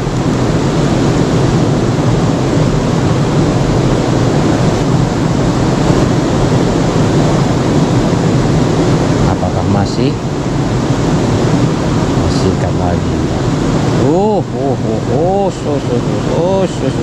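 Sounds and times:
river flowing: 10.2s - 17.0s.

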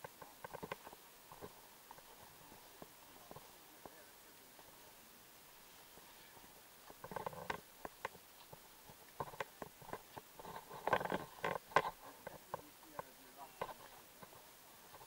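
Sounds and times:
branches rustling: 0.0s - 15.0s.

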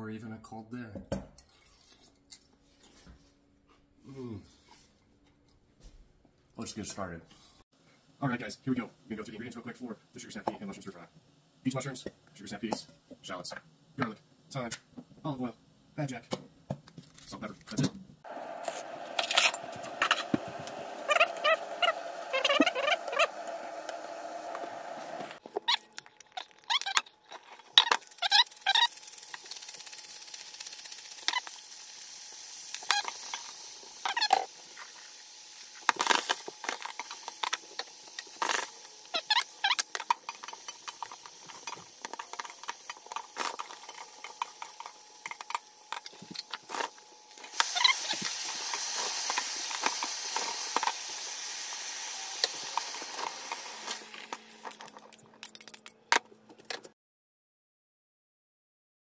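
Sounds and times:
mushrooms sizzling in oil: 18.3s - 25.4s, 27.8s - 46.0s, 46.7s - 54.8s.

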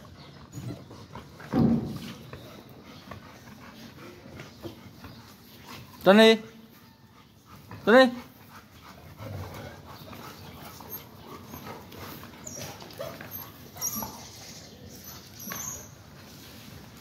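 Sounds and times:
puppies whining and yipping: 10.2s - 16.2s.

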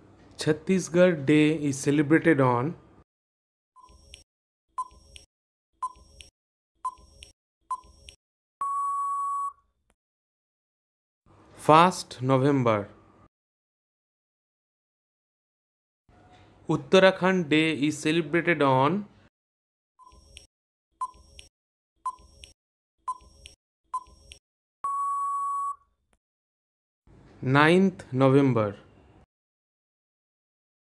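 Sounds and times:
timer ticks: 4.8s - 8.2s, 22.1s - 24.4s
electronic beep: 6.9s - 9.6s, 23.1s - 25.8s
long steady beep: 8.6s - 9.6s, 24.8s - 25.8s
short beeps: 8.6s - 9.6s, 24.8s - 25.8s.

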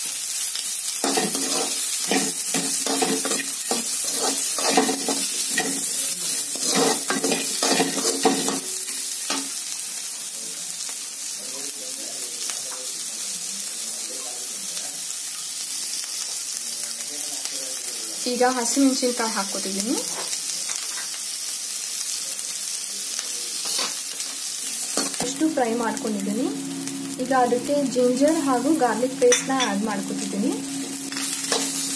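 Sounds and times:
onions sizzling in hot oil: 0.0s - 31.9s
steel spatula scraping a pan: 1.0s - 5.8s, 6.5s - 8.6s.

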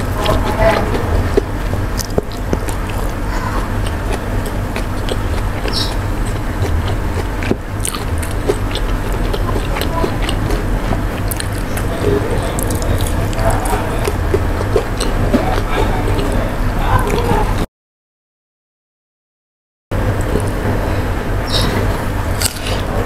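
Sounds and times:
wet mouth clicks and crunches: 0.0s - 16.4s, 21.6s - 22.9s
chewing and biting food: 0.0s - 17.6s, 20.1s - 23.0s
steady low hum: 0.0s - 17.7s, 19.9s - 23.0s.

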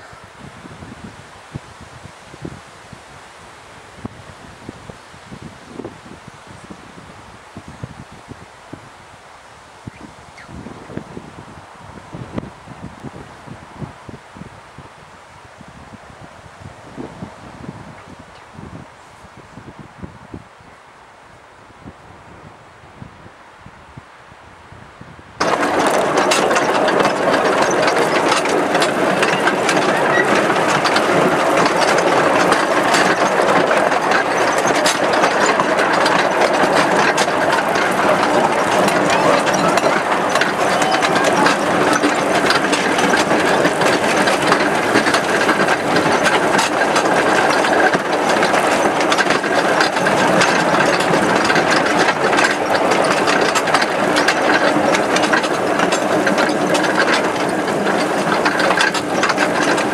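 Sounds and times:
train wheels clattering on track: 25.4s - 59.9s
wooden carriage rattling: 25.4s - 59.9s.

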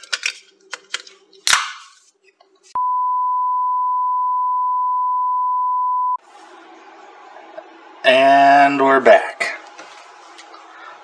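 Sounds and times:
steady high test-tone beep: 2.8s - 6.2s.

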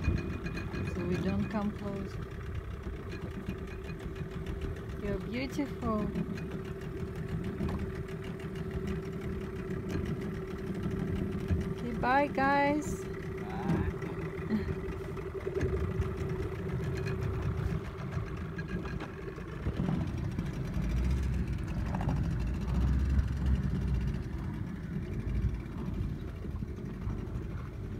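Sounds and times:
outboard motor running: 0.0s - 27.9s.

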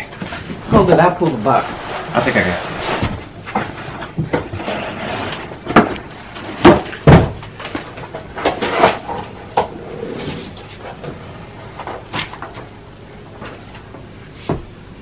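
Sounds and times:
cardboard box knocks and thuds: 6.6s - 7.4s.

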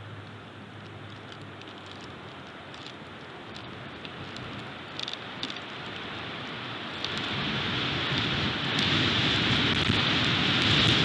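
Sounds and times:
strong wind through pine trees: 0.0s - 11.0s.

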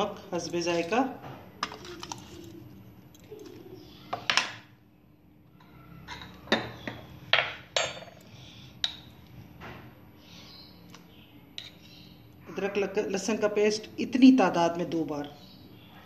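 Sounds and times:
dishes and spoons clinking: 6.0s - 9.2s.

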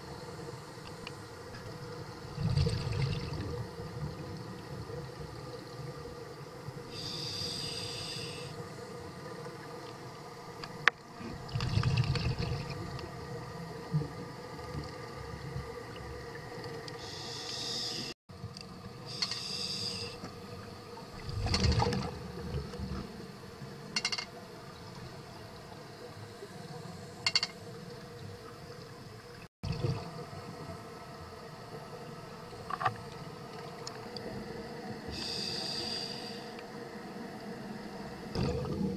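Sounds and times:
exhaled air bubbling: 2.2s - 4.3s, 11.2s - 13.3s, 21.0s - 23.2s, 29.6s - 30.3s, 38.2s - 38.9s
regulator inhalation hiss: 6.9s - 8.6s, 17.0s - 18.2s, 19.1s - 20.2s, 35.1s - 36.6s.

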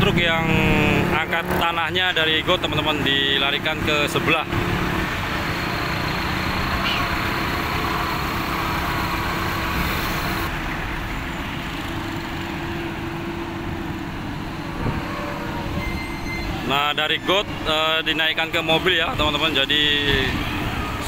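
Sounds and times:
diesel truck engine running: 0.0s - 21.0s.

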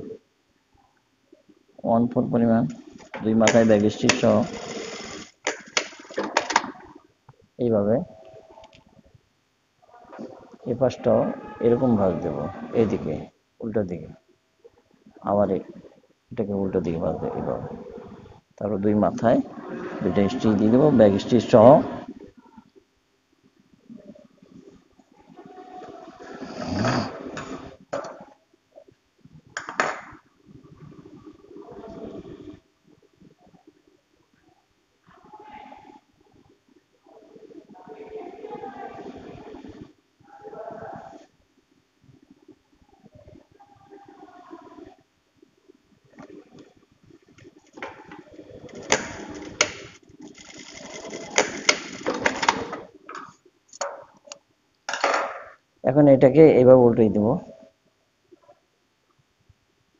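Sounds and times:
sewing machine rumbling: 3.4s - 5.4s, 48.1s - 52.8s.

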